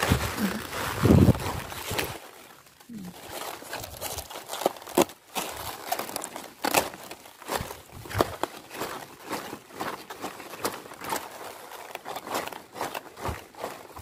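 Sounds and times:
cabbage leaves snapping: 0:00.0 - 0:09.0
cabbage leaves rustling: 0:00.0 - 0:14.0.

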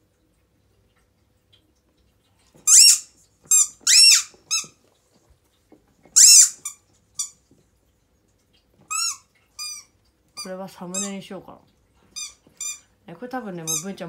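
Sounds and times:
squeaky dog toy squealing: 0:02.7 - 0:04.7, 0:06.2 - 0:07.3, 0:08.9 - 0:11.1, 0:12.2 - 0:12.8, 0:13.6 - 0:14.0.

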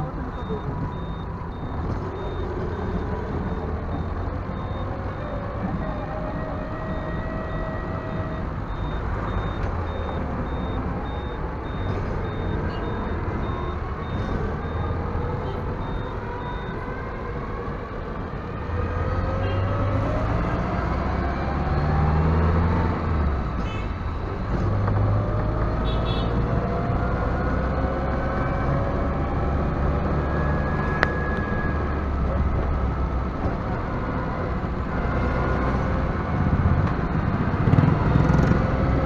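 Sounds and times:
high electronic beep: 0:00.3 - 0:16.8.

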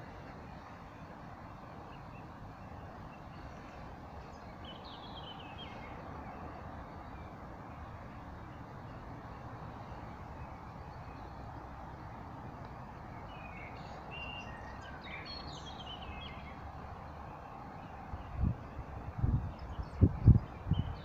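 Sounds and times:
bird chirping: 0:01.9 - 0:07.8, 0:13.1 - 0:21.0.

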